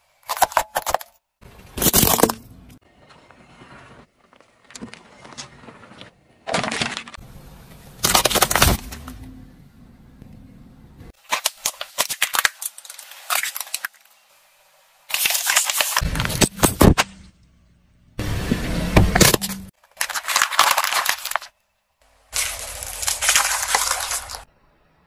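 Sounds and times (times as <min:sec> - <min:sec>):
tyre crushing plastic toys: 0:00.2 - 0:02.7, 0:04.7 - 0:07.2, 0:07.9 - 0:09.2, 0:11.2 - 0:14.0, 0:15.1 - 0:17.2, 0:19.0 - 0:21.6, 0:22.3 - 0:24.5.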